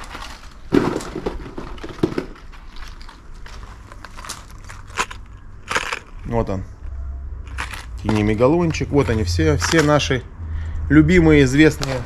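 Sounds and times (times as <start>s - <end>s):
packaging rustling: 0.0s - 6.2s.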